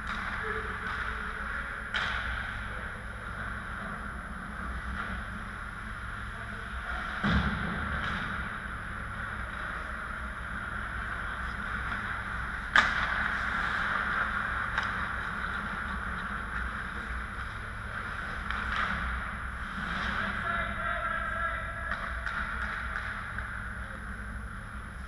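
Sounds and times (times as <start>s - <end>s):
arena hum: 0.0s - 25.0s
sticks and pucks knocking: 21.9s - 23.6s.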